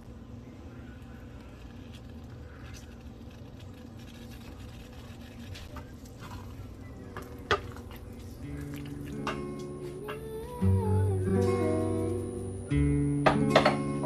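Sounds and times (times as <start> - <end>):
guitar music: 8.4 - 14.0.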